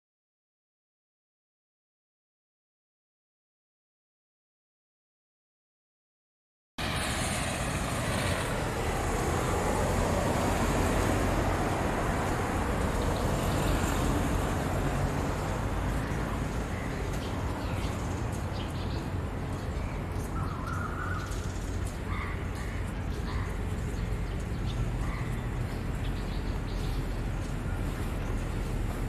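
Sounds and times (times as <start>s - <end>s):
distant road traffic rumble: 6.8s - 29.0s.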